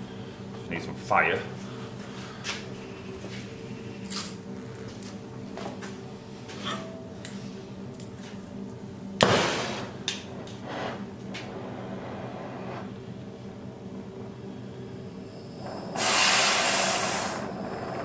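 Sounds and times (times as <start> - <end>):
gas igniting with a whoosh: 9.2 - 13.0, 15.6 - 18.0
welding torch flame hissing: 9.2 - 13.6, 14.6 - 18.0.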